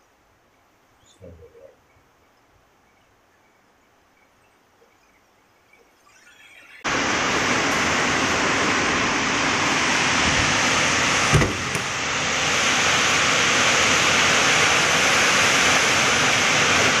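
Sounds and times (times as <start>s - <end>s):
heavy rain: 6.9s - 17.0s
storm wind: 6.9s - 17.0s
thump: 11.3s - 11.8s.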